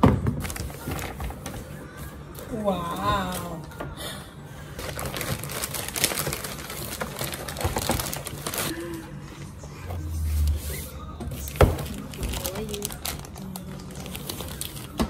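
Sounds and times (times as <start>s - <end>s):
plastic packaging crinkling: 4.8s - 9.0s, 11.3s - 15.0s.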